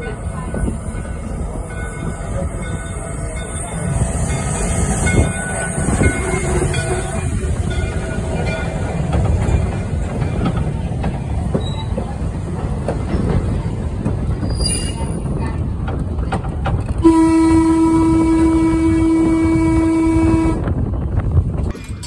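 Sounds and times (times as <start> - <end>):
train wheels rumbling on rail: 0.0 - 22.0
wheel squeal: 14.4 - 15.2
train horn: 17.0 - 20.8.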